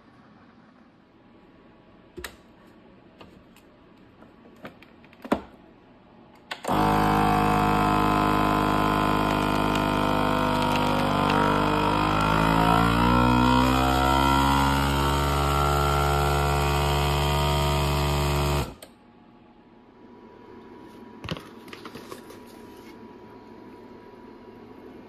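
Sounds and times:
vacuum sealer pump motor: 6.5s - 18.9s.

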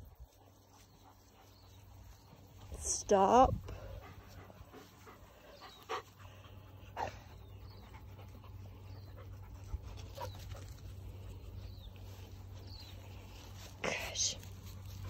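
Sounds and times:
puppy panting: 3.8s - 11.8s.

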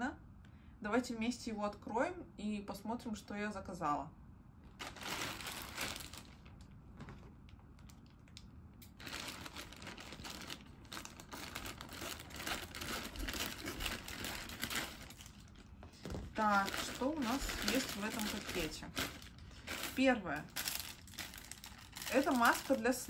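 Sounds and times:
plastic bag crinkling: 4.7s - 23.0s.

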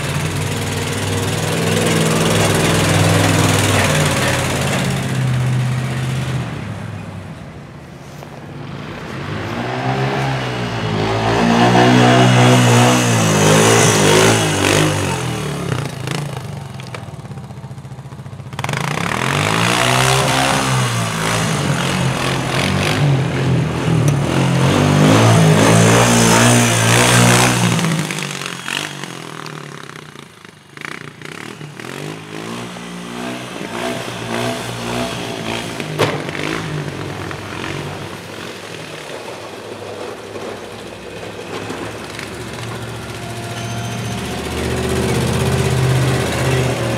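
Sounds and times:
atv engine revving: 0.0s - 7.4s, 8.6s - 46.9s
sharp knock: 36.0s - 36.5s.

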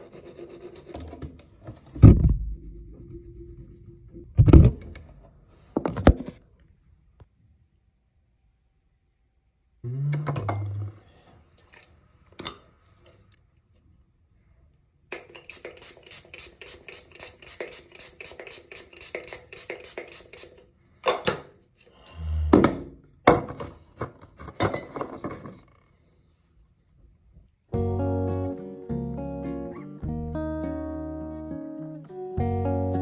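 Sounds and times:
low thud: 2.0s - 2.8s
spray bottle spraying: 15.1s - 20.6s.

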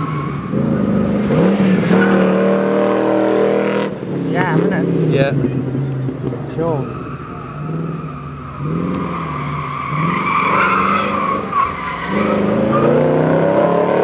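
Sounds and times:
car engine revving: 0.0s - 14.0s
tyres squealing: 6.5s - 13.2s.

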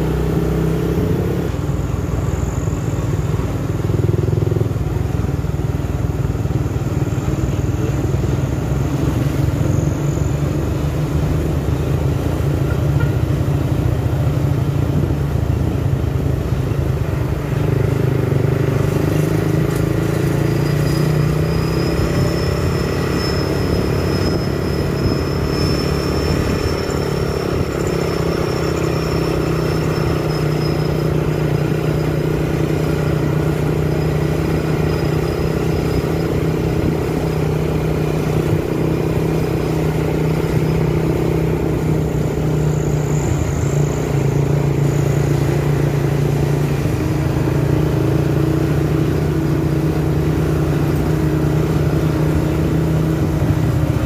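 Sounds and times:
truck engines droning: 0.0s - 54.0s
thin high whine: 19.6s - 47.9s.

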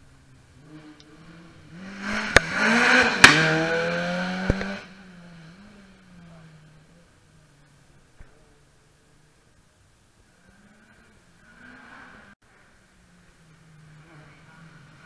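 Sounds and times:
rally car engine passing: 0.1s - 8.6s, 10.2s - 15.0s
sharp cracks: 2.0s - 4.9s.

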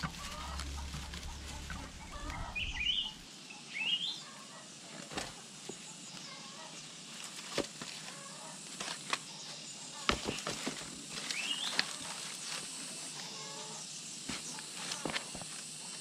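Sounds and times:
rising bird chirp: 0.0s - 4.2s
plastic crates knocking and scraping: 10.0s - 12.0s.

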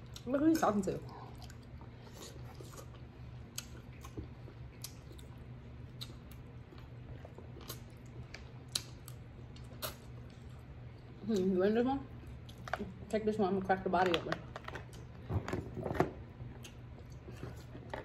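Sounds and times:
faint low hum: 0.0s - 18.0s
person chewing crab meat: 1.2s - 10.9s, 12.2s - 12.9s, 16.4s - 18.0s.

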